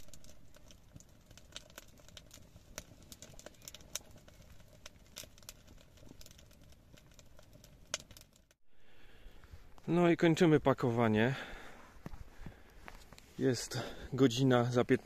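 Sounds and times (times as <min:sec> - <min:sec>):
wood fire crackling in stove: 0:00.0 - 0:15.0.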